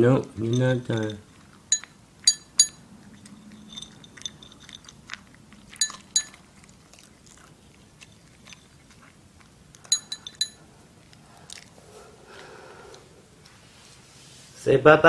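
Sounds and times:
dog crunching dry kibble: 0.0 - 11.8
sharp ringing clinks: 0.4 - 5.0, 5.8 - 6.4, 9.9 - 10.6.

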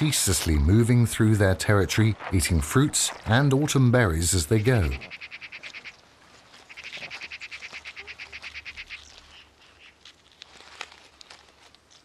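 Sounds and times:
light clicks and crackles: 10.0 - 12.0.

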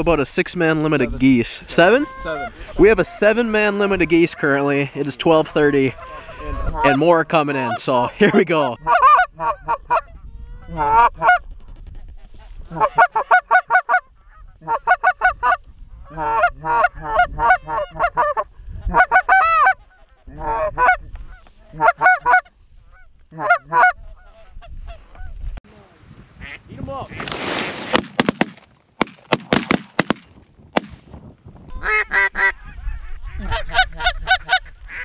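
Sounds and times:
goose honking: 1.8 - 3.3, 12.7 - 24.5, 31.7 - 35.0.

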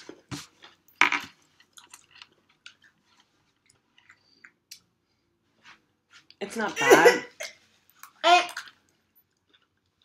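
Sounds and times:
people crunching pretzel sticks: 1.2 - 4.9.

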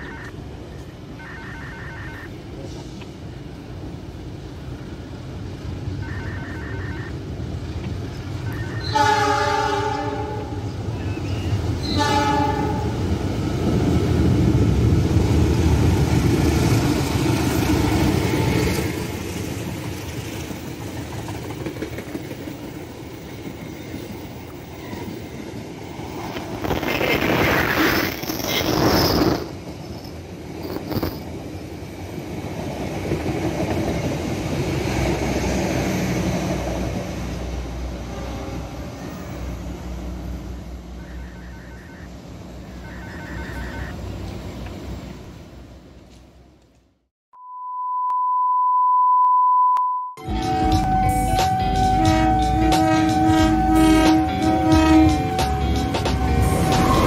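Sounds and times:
locomotive horn blasts: 8.5 - 10.6, 11.9 - 13.0, 41.0 - 44.0, 50.2 - 57.0
train wheels rumbling and clattering: 10.4 - 40.4, 50.3 - 57.0.

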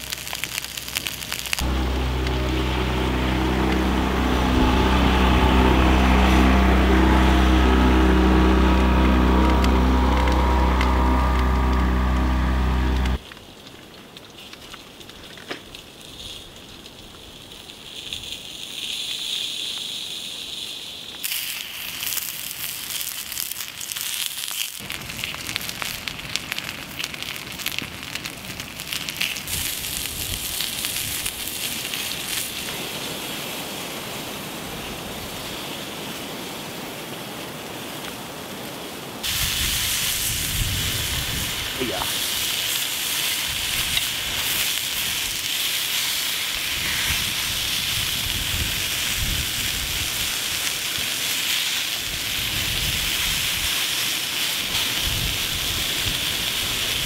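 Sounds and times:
wood fire crackling and popping: 0.0 - 2.9, 24.8 - 32.5
engine hum: 1.1 - 13.2.

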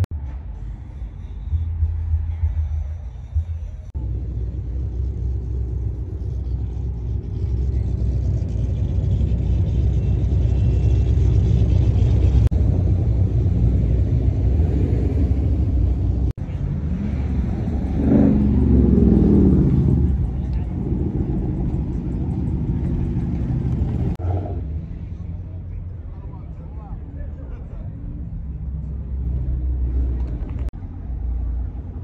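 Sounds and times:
car engines idling: 0.0 - 32.0.

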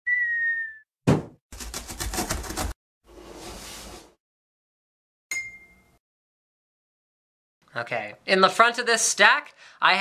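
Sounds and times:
bright ping: 5.3 - 6.0.

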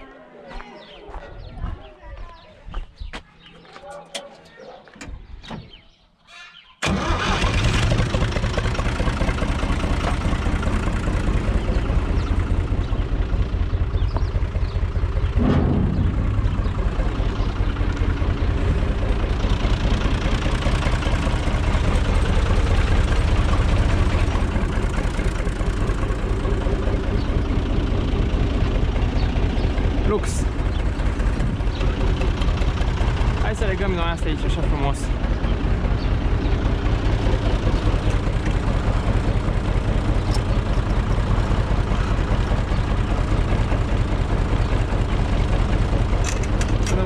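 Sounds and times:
tractor diesel engine starting: 6.8 - 47.0
tractor engine idling: 6.8 - 47.0.

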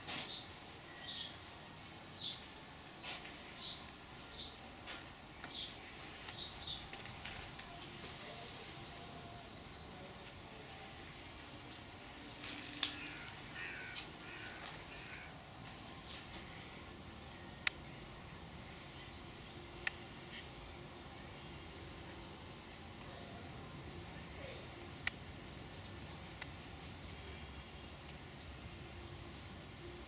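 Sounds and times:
birds calling: 11.5 - 17.8.

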